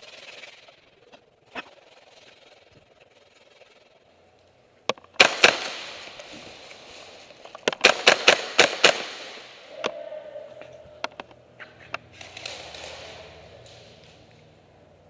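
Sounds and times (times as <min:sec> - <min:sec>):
airsoft gunshots echoing: 0:05.2 - 0:06.7, 0:07.7 - 0:10.3.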